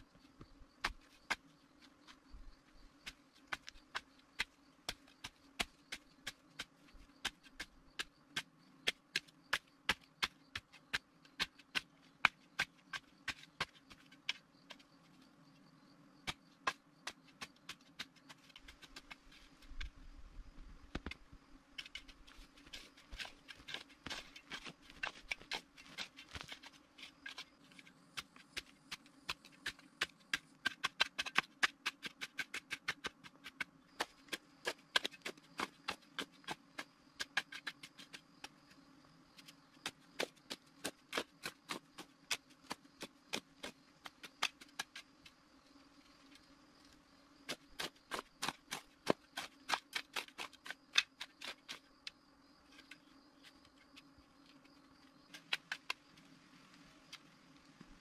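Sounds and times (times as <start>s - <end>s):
shovel scraping sandy soil: 21.8s - 38.8s, 39.4s - 45.3s, 47.4s - 52.1s.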